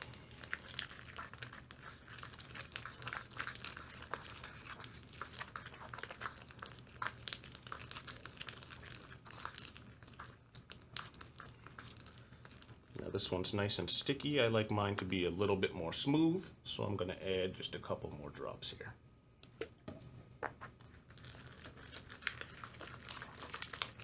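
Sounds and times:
slime stirred with spoon: 0:00.0 - 0:15.4, 0:20.4 - 0:24.0.

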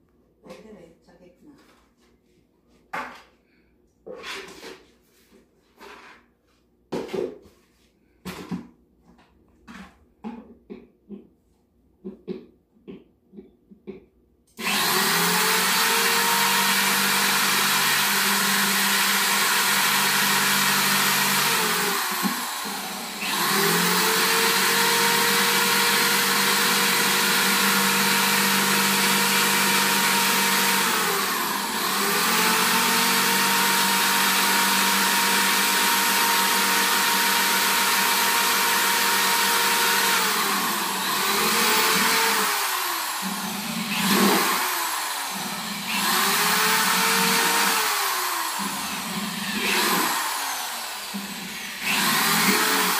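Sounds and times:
electric drill drilling plastic: 0:14.6 - 0:52.9.

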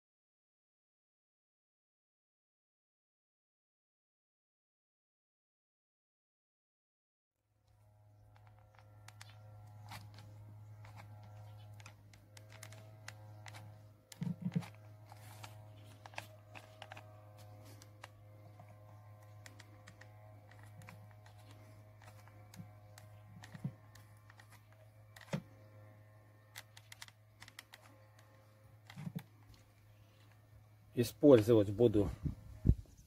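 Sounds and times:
steady low hum: 0:07.6 - 0:33.0
glue gun clicks and taps: 0:11.7 - 0:25.5, 0:26.5 - 0:29.6.

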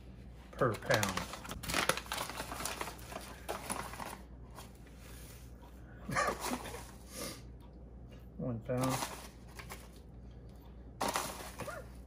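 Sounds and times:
packet rustling and crinkling: 0:00.5 - 0:04.7, 0:08.8 - 0:10.0, 0:11.0 - 0:12.0.

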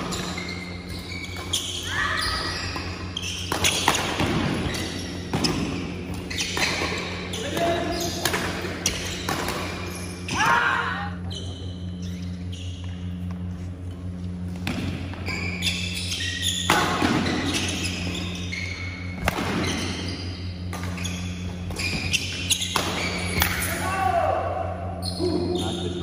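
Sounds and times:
steady low hum: 0:00.0 - 0:26.0
racket hitting shuttlecock: 0:02.9 - 0:04.6, 0:08.2 - 0:09.8, 0:19.2 - 0:19.8, 0:22.6 - 0:23.6
person shouting: 0:10.4 - 0:11.2, 0:23.8 - 0:24.6.

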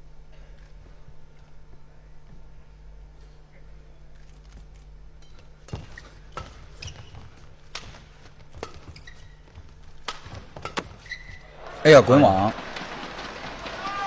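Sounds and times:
low arena hum: 0:00.0 - 0:14.0
shoes squeaking on court: 0:04.4 - 0:11.5
racket striking shuttlecock: 0:09.7 - 0:11.0.

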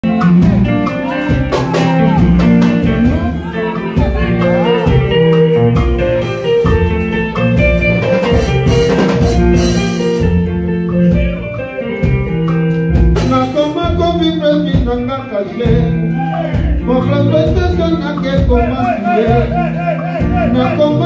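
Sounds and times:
person singing: 0:00.0 - 0:06.5, 0:13.2 - 0:21.0
bass guitar: 0:00.0 - 0:21.0
drum kit: 0:00.0 - 0:21.0
electric guitar: 0:00.0 - 0:21.0.

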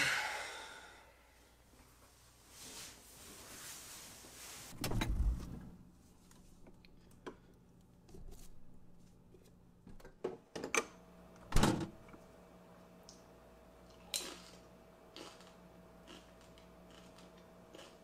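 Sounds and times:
faint steady hum: 0:00.0 - 0:03.5.

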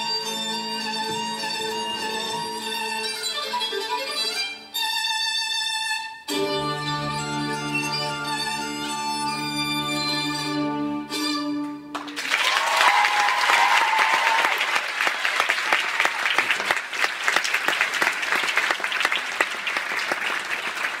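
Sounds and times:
audience applause: 0:11.9 - 0:21.0
person cheering: 0:12.2 - 0:14.8.

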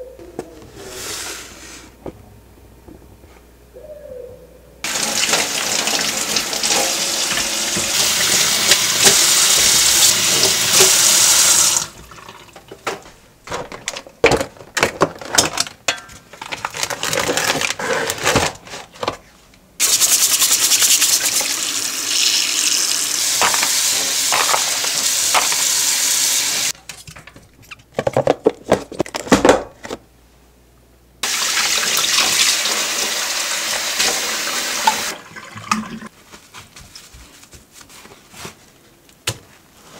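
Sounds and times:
dishes knocking and handling: 0:23.4 - 0:25.7.

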